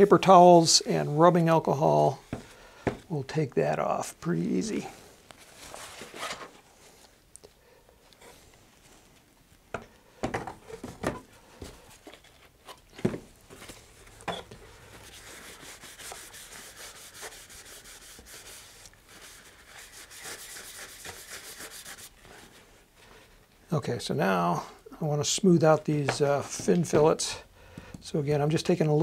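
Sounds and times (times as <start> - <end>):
paper rustling: 5.3 - 7.2
paper towel rubbing on tube: 15.0 - 22.7.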